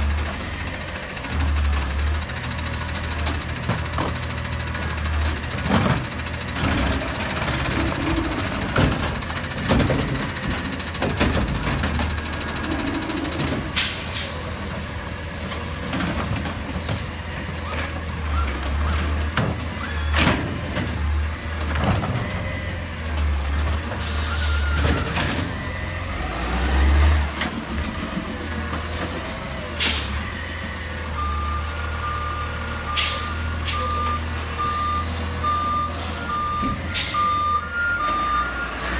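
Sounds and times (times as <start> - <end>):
garbage truck engine running: 0.0 - 38.9
air brake hiss: 13.8 - 14.4, 29.8 - 30.2, 33.0 - 33.8
repeating beeping alarm: 31.2 - 38.8.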